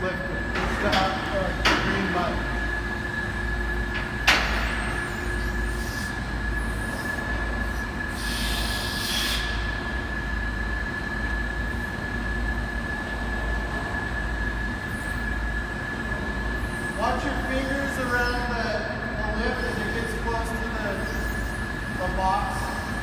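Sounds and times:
parking lift motor whine: 0.0s - 23.0s.

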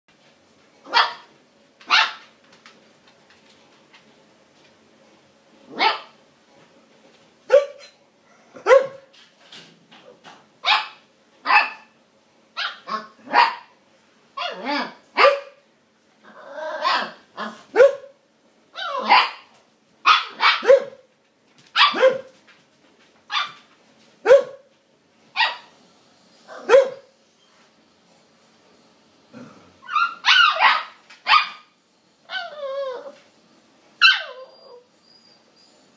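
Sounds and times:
puppy barking: 0.9s - 1.3s, 1.9s - 2.2s, 5.7s - 6.2s, 7.5s - 7.9s, 8.6s - 9.1s, 10.6s - 11.9s, 12.6s - 13.7s, 14.4s - 15.6s, 16.8s - 18.2s, 18.8s - 21.0s, 21.8s - 22.3s, 23.3s - 23.6s, 24.2s - 24.7s, 25.4s - 25.7s, 26.5s - 27.1s, 29.8s - 31.7s, 34.0s - 34.5s.

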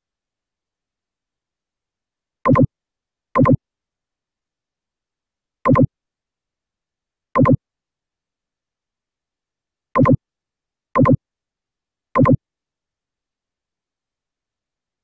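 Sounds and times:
short electronic blips: 2.5s - 2.7s, 5.7s - 5.9s, 7.4s - 7.6s, 10.0s - 10.2s, 11.0s - 11.2s, 12.2s - 12.4s.

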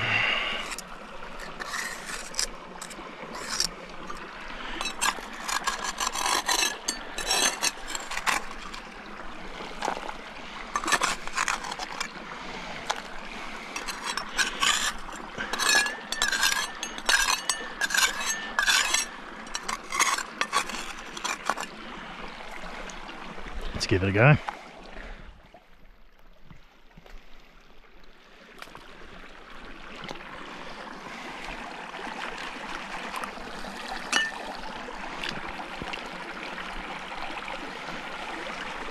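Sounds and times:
metal tool scraping gravel: 0.4s - 0.8s, 1.4s - 8.9s, 9.8s - 12.1s, 12.8s - 21.7s, 34.2s - 34.4s
thin high squeal: 13.8s - 21.7s.

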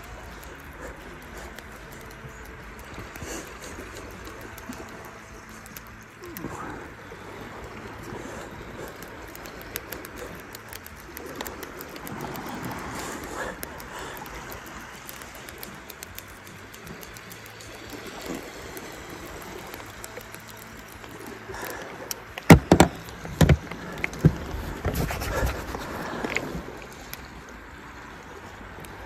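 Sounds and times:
sea water washing against rocks: 0.0s - 29.0s
knocks and bumps from handling gear: 22.5s - 23.6s.

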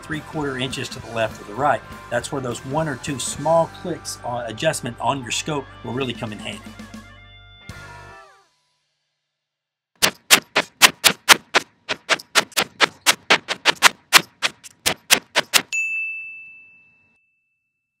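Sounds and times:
typewriter keystrokes clacking: 10.0s - 15.7s
typewriter bell ding: 15.7s - 17.8s.

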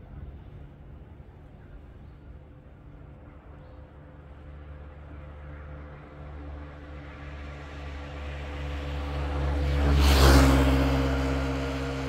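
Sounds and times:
vehicle passing with engine hum: 3.8s - 12.0s.

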